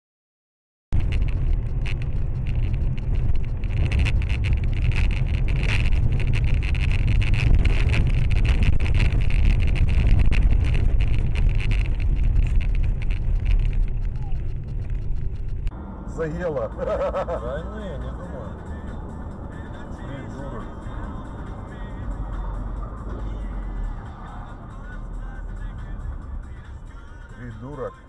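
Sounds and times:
car road and wind rumble: 0.9 - 28.0
small clicks and ticks: 1.0 - 15.7.

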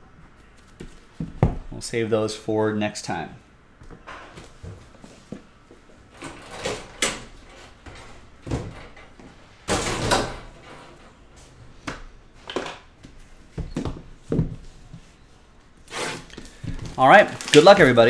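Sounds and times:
boxes being handled and set down: 16.2 - 17.7.

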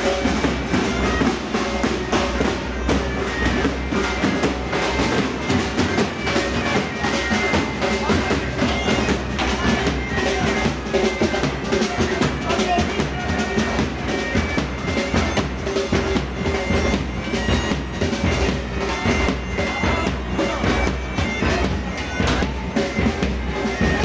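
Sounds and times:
bagpipes playing: 0.0 - 24.0.

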